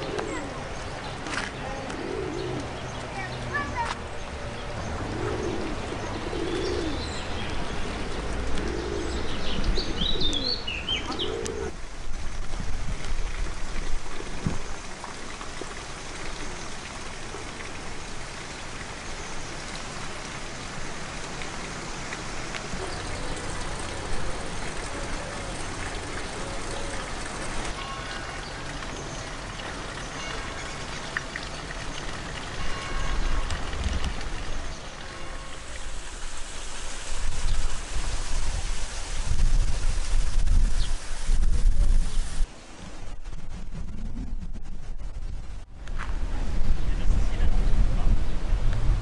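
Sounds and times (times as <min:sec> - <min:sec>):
pigeons cooing: 0:00.0 - 0:03.8, 0:04.7 - 0:11.8, 0:22.6 - 0:28.2
steady hiss: 0:34.2 - 0:45.6.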